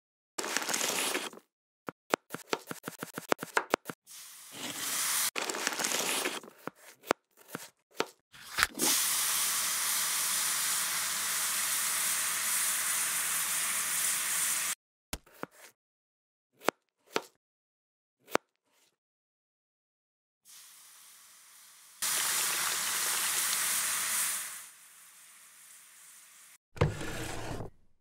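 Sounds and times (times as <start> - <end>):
vegetables sizzling in oil: 8.8 - 14.8, 20.5 - 26.6.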